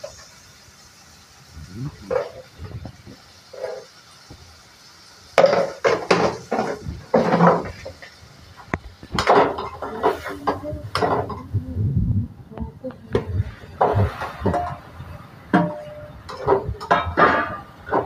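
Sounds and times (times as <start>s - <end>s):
metal spatula clattering on pan: 5.4s - 8.1s, 9.1s - 11.5s, 15.5s - 18.0s.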